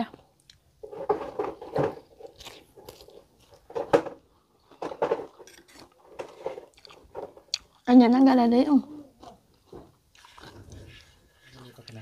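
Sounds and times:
chewing: 0:02.1 - 0:03.7, 0:04.3 - 0:08.0, 0:09.1 - 0:12.0.

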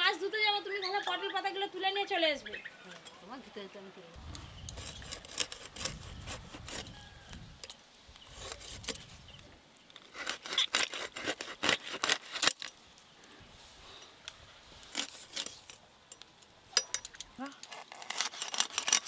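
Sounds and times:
blade scraping fish scales: 0:04.4 - 0:07.2, 0:08.2 - 0:09.2, 0:14.8 - 0:15.8.

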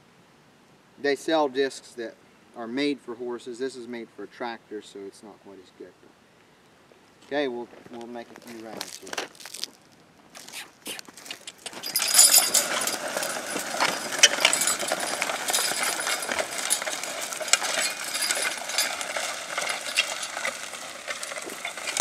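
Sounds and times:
disc harrow scraping and clattering: 0:11.4 - 0:22.0.

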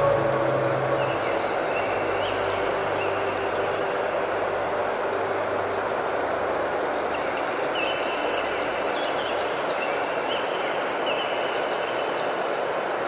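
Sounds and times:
thin high tones: 0:00.0 - 0:02.1.

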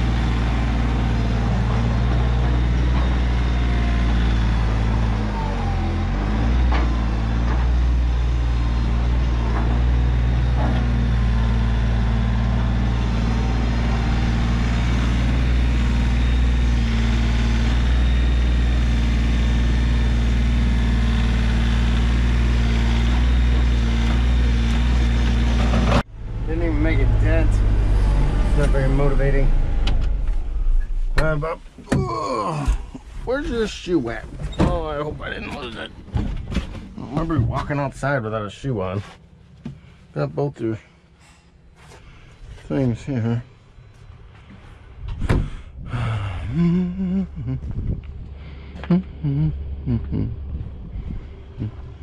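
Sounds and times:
tractor diesel engine running: 0:00.0 - 0:31.8, 0:32.6 - 0:52.0.

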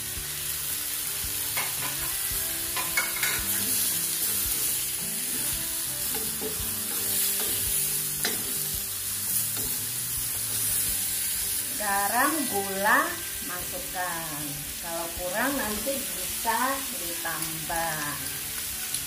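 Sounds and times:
shrimp sizzling in a hot pan: 0:00.0 - 0:19.0
spatula scraping a pan: 0:02.8 - 0:04.6.

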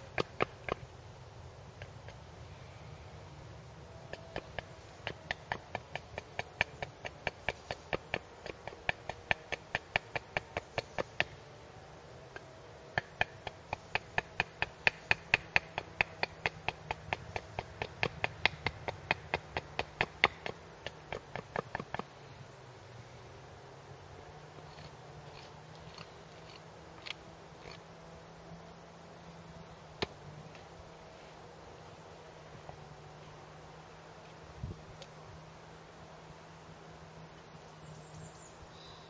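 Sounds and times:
hatchet chopping wood: 0:00.0 - 0:00.9, 0:04.1 - 0:11.4, 0:12.4 - 0:22.1.

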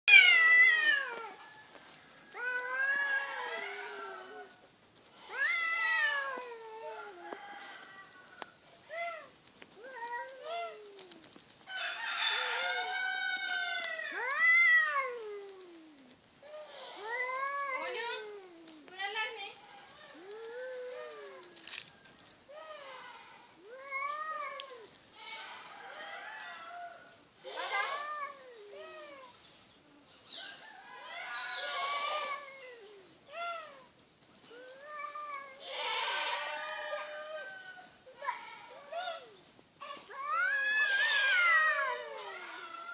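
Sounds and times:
cats yowling: 0:00.1 - 0:01.5, 0:02.3 - 0:04.6, 0:05.2 - 0:11.4, 0:12.2 - 0:19.1, 0:20.0 - 0:21.8, 0:22.6 - 0:24.9, 0:26.2 - 0:29.4, 0:31.0 - 0:42.9.

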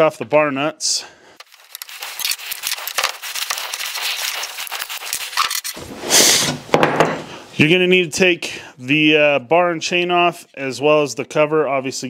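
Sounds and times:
rustling scrape: 0:01.4 - 0:06.6.

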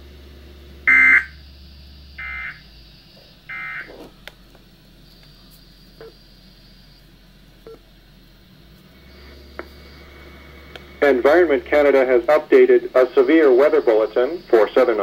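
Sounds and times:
warbling data bursts: 0:11.0 - 0:15.0.

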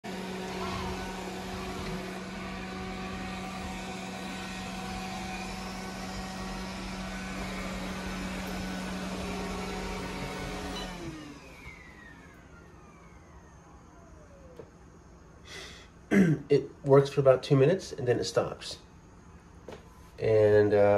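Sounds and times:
robot vacuum motor hum: 0:00.0 - 0:14.6
falling motor whine: 0:00.0 - 0:15.2.

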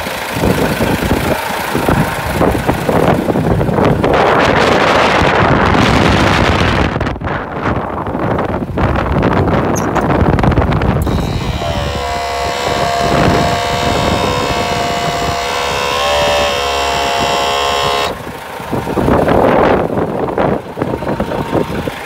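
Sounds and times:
wind on microphone: 0:00.4 - 0:21.9
machine hum with whine: 0:09.8 - 0:22.0.

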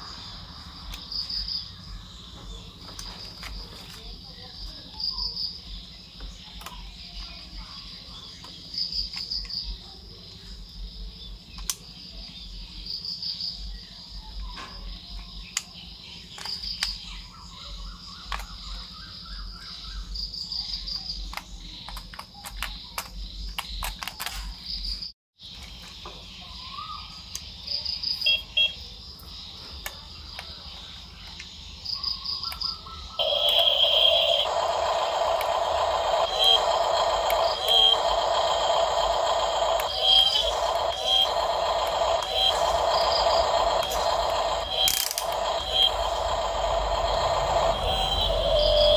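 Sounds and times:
crickets trilling: 0:00.0 - 0:48.9
plastic parts clicking: 0:21.3 - 0:24.6, 0:44.7 - 0:45.4.

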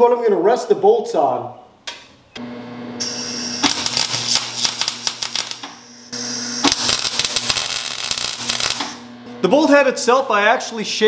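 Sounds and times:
welder arc crackling: 0:03.0 - 0:09.1.

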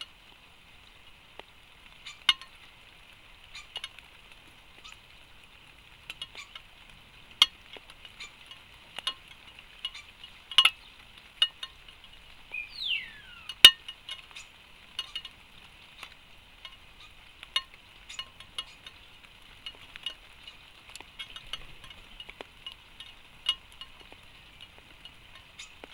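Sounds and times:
short falling whistle: 0:12.5 - 0:13.6.

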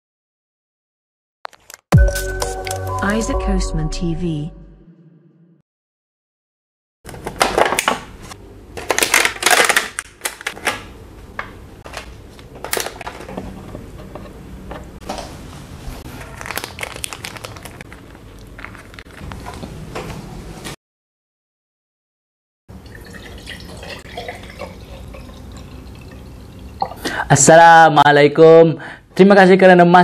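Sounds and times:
plastic containers crinkling: 0:07.1 - 0:08.2, 0:08.8 - 0:10.9, 0:11.8 - 0:13.6, 0:16.1 - 0:19.8.

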